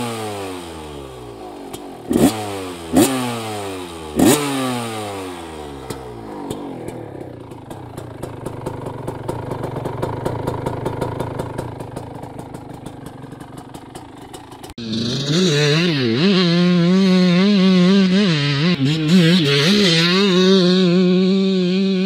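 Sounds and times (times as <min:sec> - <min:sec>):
two-stroke engine idling: 0:00.0 - 0:04.4, 0:05.2 - 0:17.6.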